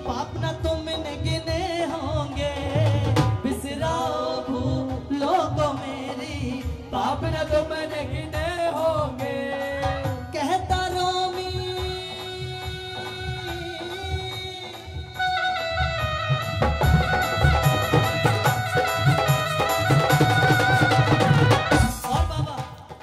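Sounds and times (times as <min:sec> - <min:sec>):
man singing through microphone: 0:00.0 - 0:16.0, 0:20.6 - 0:23.0
held instrumental melody: 0:06.4 - 0:22.9
drum beat: 0:16.5 - 0:23.0.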